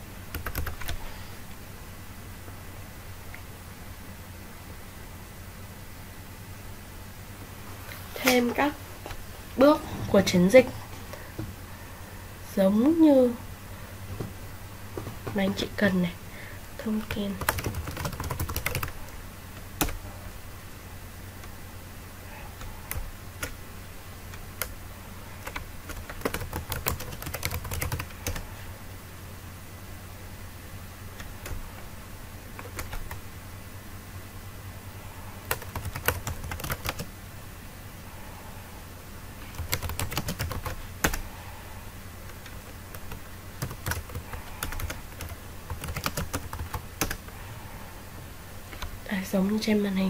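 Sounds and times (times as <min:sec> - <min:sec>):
faint low hum: 0:00.0 - 0:50.0
typing on computer keyboard: 0:00.3 - 0:01.0, 0:17.0 - 0:19.0, 0:25.4 - 0:28.4, 0:32.6 - 0:33.2, 0:35.5 - 0:37.1, 0:39.5 - 0:41.2, 0:42.3 - 0:47.2.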